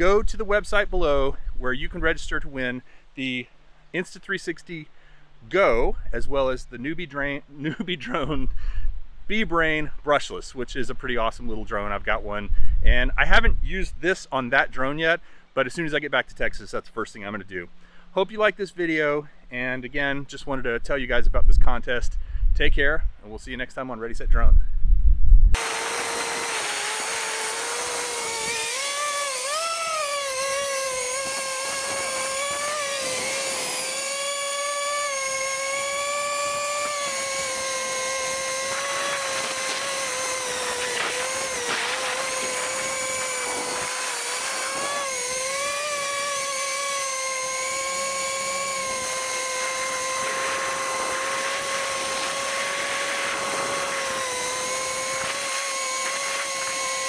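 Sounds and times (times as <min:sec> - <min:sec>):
drone motors whining: 0:25.6 - 0:57.0.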